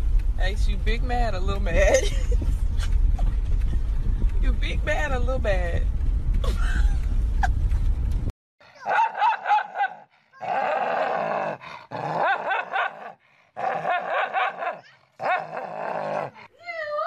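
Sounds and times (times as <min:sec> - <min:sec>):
dog growling and snarling: 0:10.4 - 0:14.6, 0:15.2 - 0:16.6.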